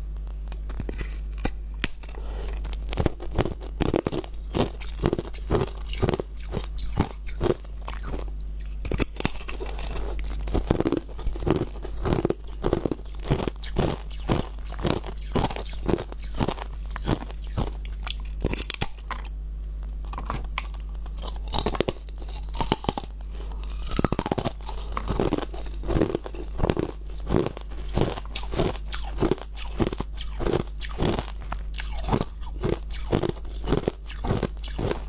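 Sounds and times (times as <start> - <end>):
person chewing crunching ice: 0.6 - 35.0.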